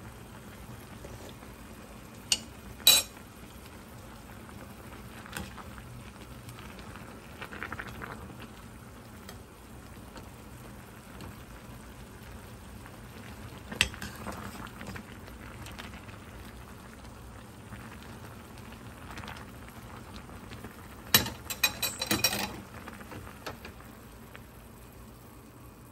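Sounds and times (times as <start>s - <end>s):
soup simmering in a pot: 0.0s - 25.9s.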